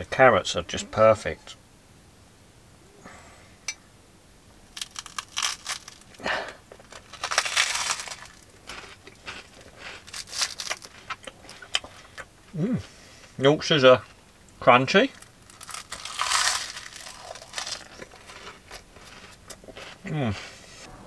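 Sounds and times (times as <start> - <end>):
crunchy food chewing: 4.8 - 12.3, 15.1 - 20.6.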